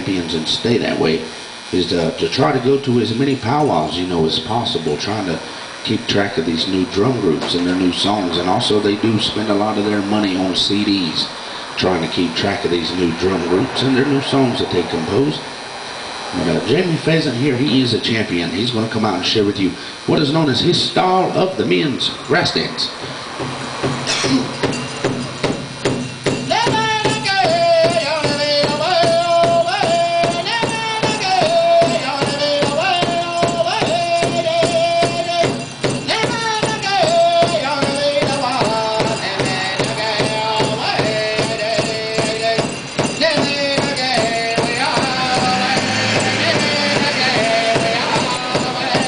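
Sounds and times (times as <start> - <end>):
bells jingling: 21.9 - 23.4, 24.0 - 49.0
steady drum beat: 23.0 - 49.0
high-pitched singing: 26.5 - 49.0.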